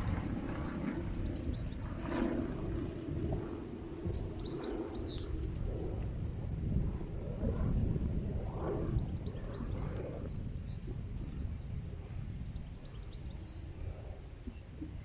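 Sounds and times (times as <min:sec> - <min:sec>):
wind rumbling on microphone: 0:00.0 - 0:15.0
songbird singing: 0:00.6 - 0:02.3, 0:04.0 - 0:05.6, 0:09.0 - 0:11.7, 0:12.4 - 0:13.7.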